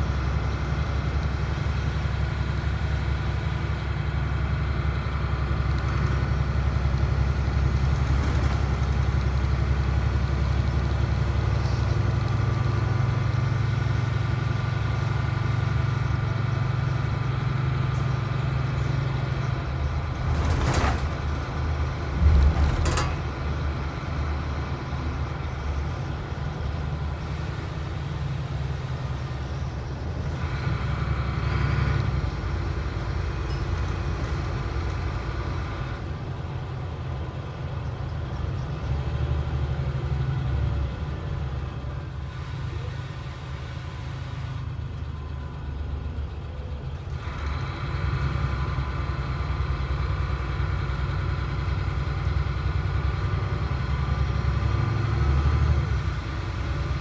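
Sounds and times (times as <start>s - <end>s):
bus engine drone: 0.0s - 57.0s
road rumble: 0.0s - 57.0s
sharp rattles: 20.0s - 24.0s.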